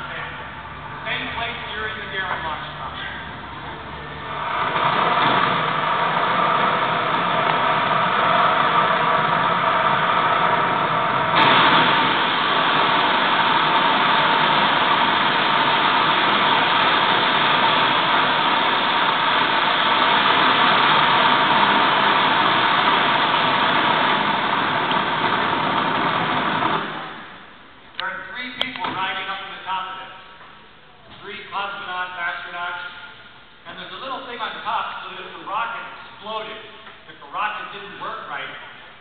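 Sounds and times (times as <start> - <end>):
rocket launch roar: 3.2 - 27.6.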